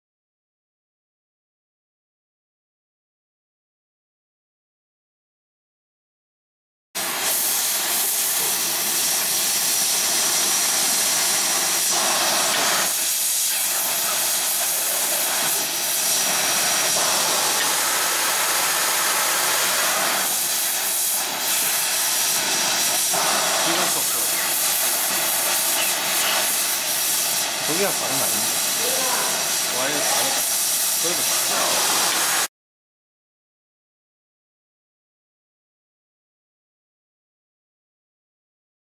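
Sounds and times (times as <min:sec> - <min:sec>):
gas torch flames hissing: 0:07.0 - 0:32.5.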